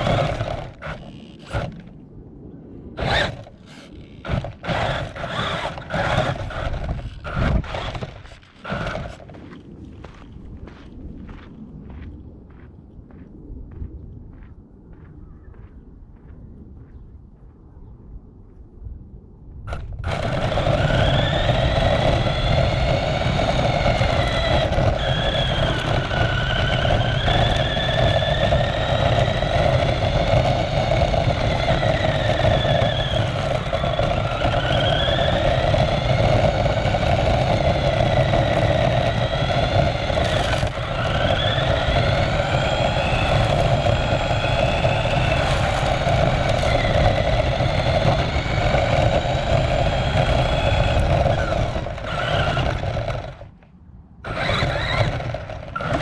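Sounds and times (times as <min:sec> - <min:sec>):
remote-control car motor whine: 0:00.0 - 0:01.9, 0:03.0 - 0:09.4, 0:19.7 - 0:53.5, 0:54.2 - 0:56.0
drivetrain and tyre rumble: 0:00.0 - 0:02.0, 0:03.0 - 0:12.6, 0:19.7 - 0:56.0.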